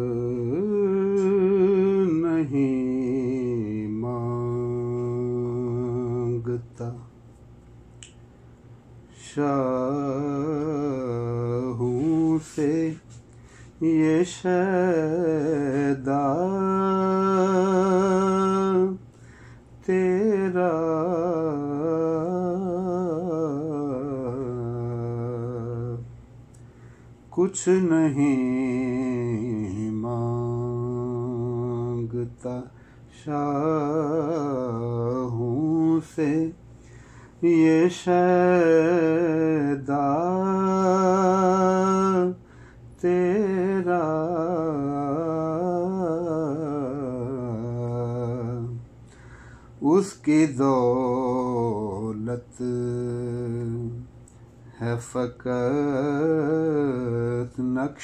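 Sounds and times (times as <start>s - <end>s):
man singing unaccompanied: 0.0s - 7.2s, 9.1s - 19.1s, 19.8s - 26.1s, 27.3s - 36.7s, 37.3s - 48.9s, 49.8s - 58.0s
steady low tone: 0.0s - 58.0s
man singing melismatic phrase: 9.2s - 13.2s, 13.8s - 19.0s.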